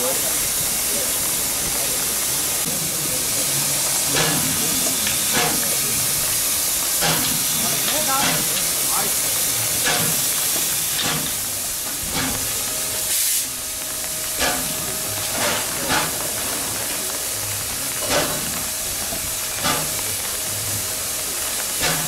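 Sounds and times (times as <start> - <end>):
short sharp steam bursts: 0.0 - 13.7, 21.2 - 22.0
steam locomotive hissing: 0.0 - 22.0.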